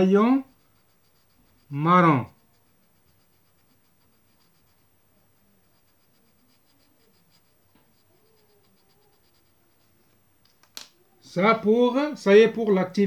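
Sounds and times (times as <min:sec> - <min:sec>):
pencil scratching on paper: 0:00.0 - 0:10.2.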